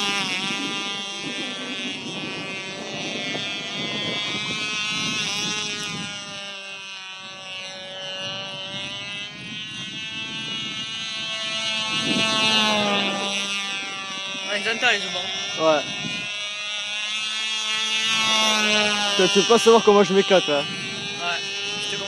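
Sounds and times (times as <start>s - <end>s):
model plane engine buzzing: 0.0s - 22.0s.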